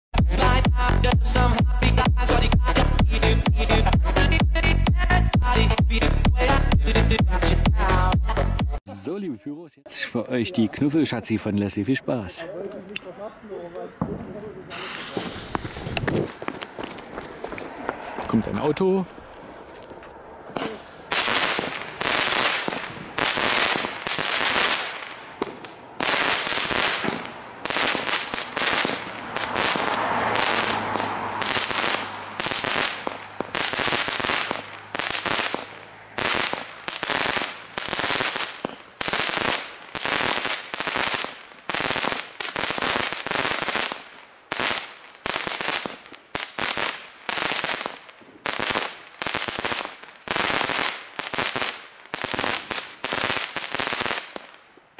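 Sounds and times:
firework shots popping and hissing: 14.0s - 18.2s, 20.4s - 54.6s.

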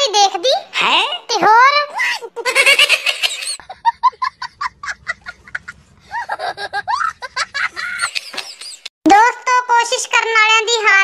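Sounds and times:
boy laughing hard: 2.0s - 8.9s.

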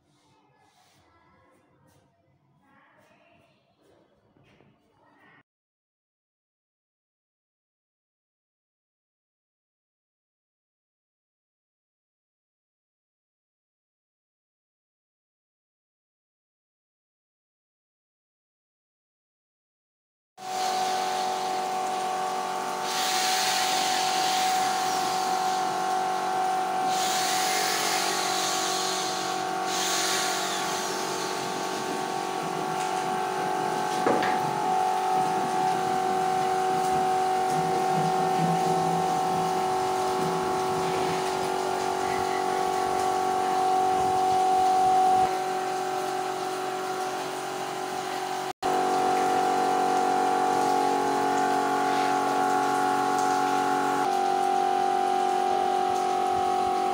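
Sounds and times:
mechanical hum: 20.4s - 56.9s.

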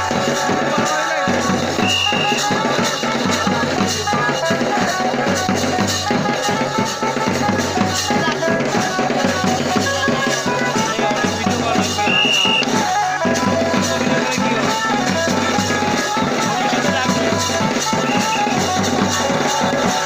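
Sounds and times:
fast steady drumbeat: 0.0s - 20.0s
sustained folk melody: 0.0s - 20.0s.

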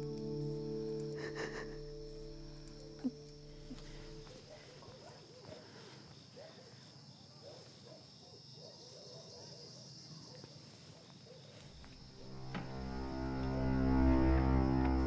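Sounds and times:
music: 0.0s - 4.5s, 11.8s - 15.0s
crickets trilling: 0.0s - 15.0s
faint insect chirps: 0.0s - 15.0s.

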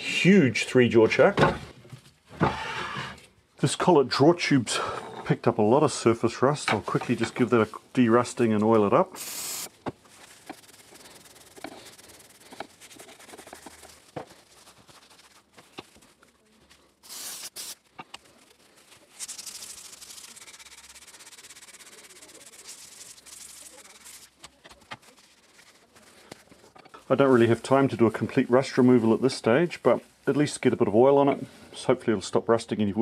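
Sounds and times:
aerosol spray hiss: 9.2s - 9.7s, 17.0s - 17.8s, 19.2s - 23.8s
fast rhythmic rubbing: 9.5s - 15.5s, 19.2s - 26.5s.

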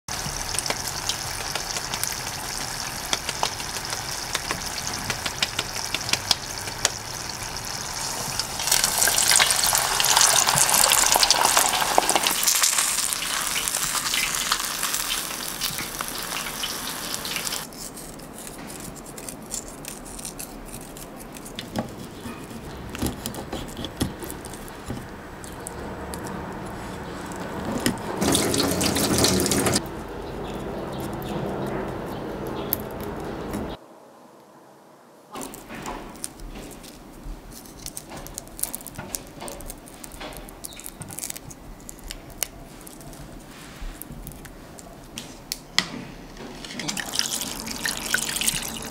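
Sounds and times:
cooking hiss with crackles: 0.1s - 17.7s, 46.6s - 48.9s
scattered clicks and ticks: 0.5s - 7.0s.

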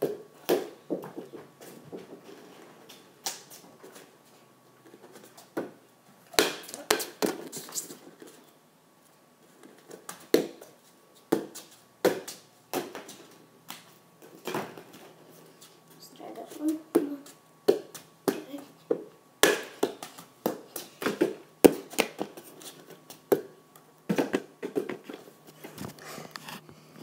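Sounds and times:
ball kicked and bouncing on floor: 0.0s - 2.2s, 5.5s - 7.5s, 11.3s - 13.4s, 16.7s - 22.4s, 23.3s - 25.2s.

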